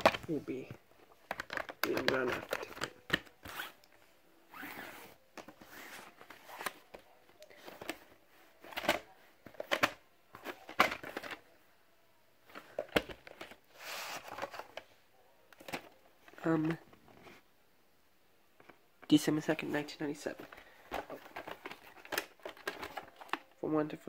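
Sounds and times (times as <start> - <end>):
plastic cases clicking and knocking: 0.0 - 3.4, 5.3 - 11.4, 12.5 - 13.6, 20.4 - 23.6
rustling and scraping: 4.5 - 11.4, 12.5 - 14.9, 20.3 - 23.5.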